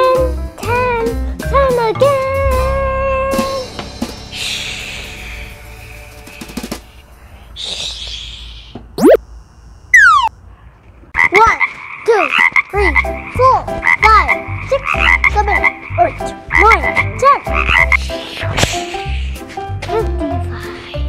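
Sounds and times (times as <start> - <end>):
cartoon frog croaks: 7.7 - 9.2, 9.9 - 10.3, 11.1 - 18.1
cartoon whoosh: 9.0 - 9.2.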